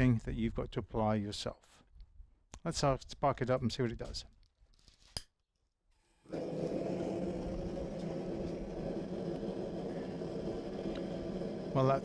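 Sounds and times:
gas burner rushing: 6.2 - 12.0.

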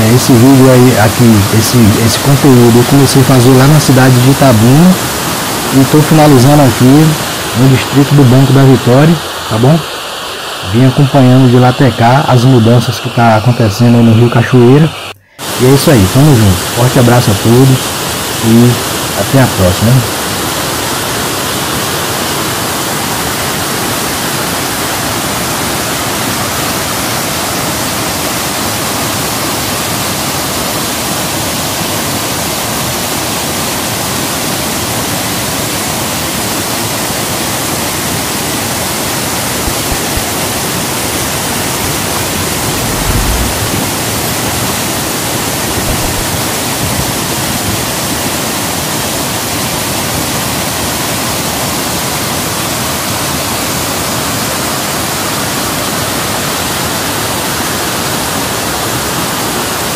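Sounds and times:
river rushing over rapids: 0.0 - 11.8, 15.0 - 59.9
low bumps: 42.2 - 44.4.

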